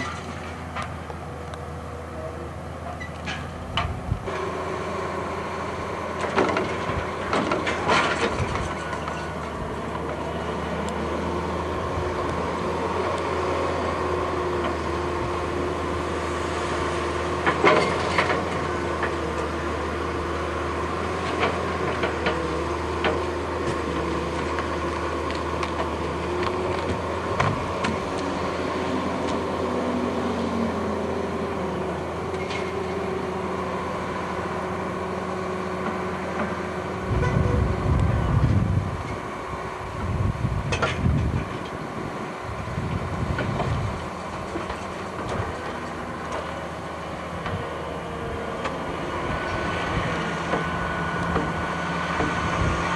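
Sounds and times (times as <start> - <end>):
log loader diesel engine running: 0.0 - 52.9
heavy low rumbles: 3.6 - 4.6, 36.8 - 52.9.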